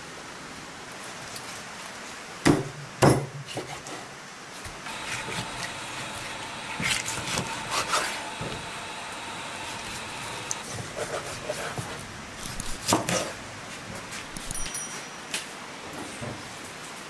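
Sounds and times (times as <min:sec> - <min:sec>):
knife slicing raw chicken: 0:04.9 - 0:13.4
knife chopping on wooden board: 0:05.0 - 0:10.3, 0:12.6 - 0:13.3.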